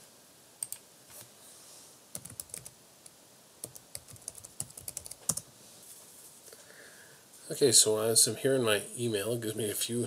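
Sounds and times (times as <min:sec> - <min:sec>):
typing on a computer keyboard: 0:00.6 - 0:00.8, 0:02.2 - 0:02.7, 0:03.6 - 0:05.4.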